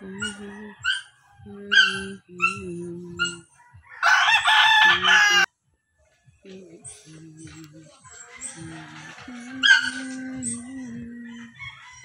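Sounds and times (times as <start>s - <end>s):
rooster crowing: 0.0s - 2.0s, 3.5s - 5.5s, 8.1s - 10.2s, 10.8s - 12.0s.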